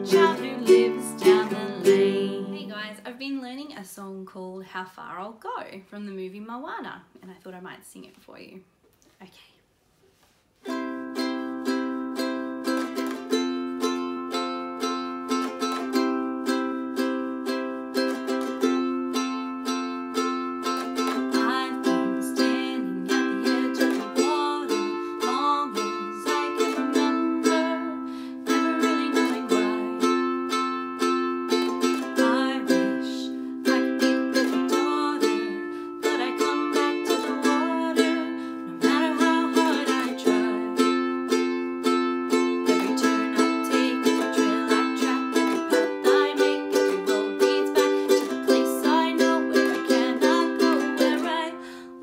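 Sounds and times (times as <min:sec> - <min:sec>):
ukulele strumming: 0:00.0 - 0:03.4, 0:10.2 - 0:52.0
woman singing: 0:00.0 - 0:03.8, 0:20.9 - 0:30.6, 0:31.6 - 0:41.6, 0:42.6 - 0:52.0.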